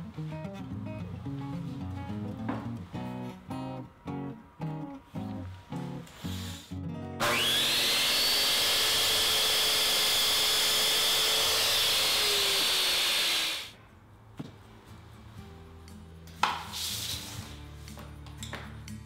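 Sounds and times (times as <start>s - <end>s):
miter saw cutting wood: 7.2s - 13.7s.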